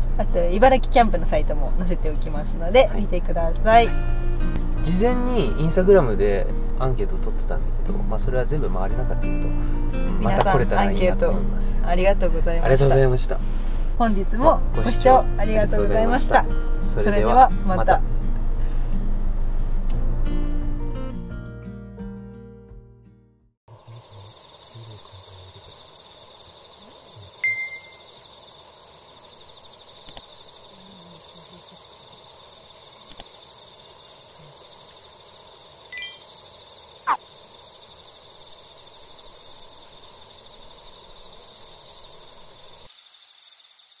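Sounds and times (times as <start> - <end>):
insect chorus: 0.0 - 20.5, 23.7 - 44.0
short chime-like tones: 27.4 - 28.0, 36.0 - 36.2
faint clicks: 30.0 - 30.3, 33.0 - 33.3.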